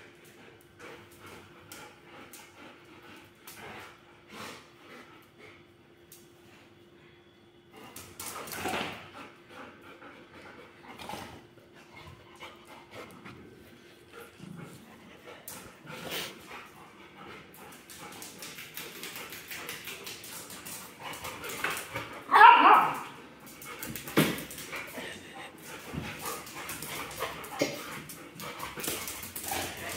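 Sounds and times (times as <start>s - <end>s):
dog claws ticking on tiles: 15.4s - 22.2s, 22.9s - 29.9s.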